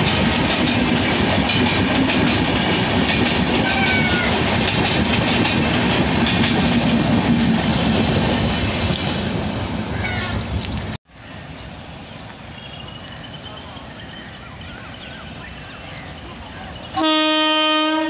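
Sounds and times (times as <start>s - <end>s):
wheels clacking over rail joints: 0.0s - 11.0s
train coaches rumbling: 0.0s - 18.0s.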